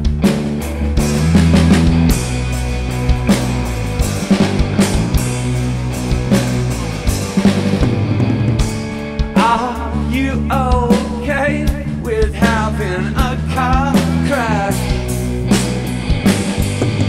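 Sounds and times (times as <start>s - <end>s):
drum kit: 0.0s - 17.0s
electric guitar: 0.0s - 17.0s
man singing: 9.4s - 15.1s.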